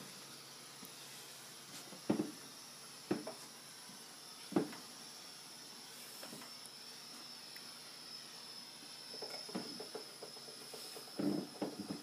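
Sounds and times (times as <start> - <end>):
knocks on wooden tabletop: 2.1 - 2.4, 3.1 - 3.4, 4.5 - 4.8.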